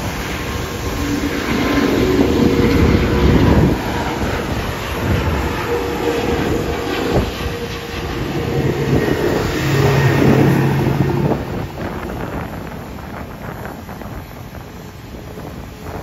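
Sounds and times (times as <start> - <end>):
low hum: 0.0 - 14.5
jet engines rushing: 0.0 - 16.0.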